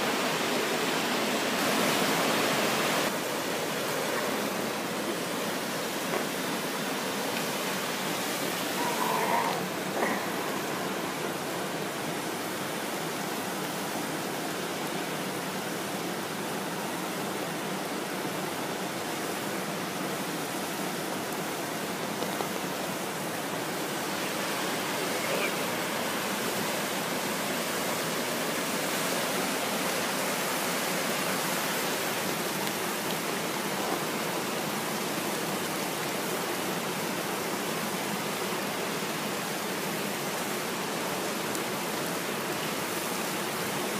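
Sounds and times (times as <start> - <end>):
flowing water rushing: 0.0 - 43.9.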